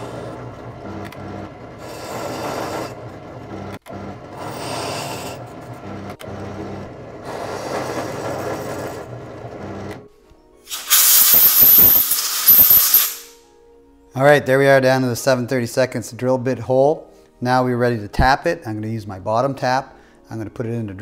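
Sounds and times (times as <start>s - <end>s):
drill press motor humming: 0.0s - 10.1s
loud hiss: 10.7s - 13.4s.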